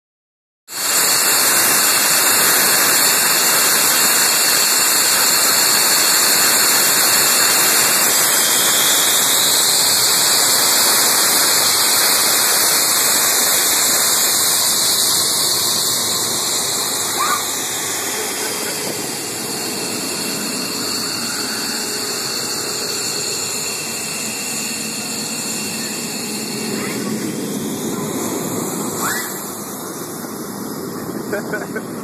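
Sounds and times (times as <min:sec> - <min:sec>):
jet engines rushing: 0:00.7 - 0:32.0.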